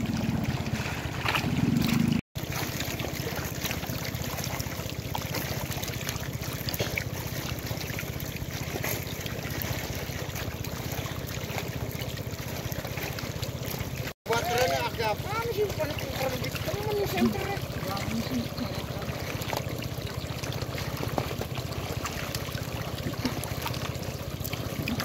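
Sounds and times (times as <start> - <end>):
water trickling and splashing: 0.0 - 25.0.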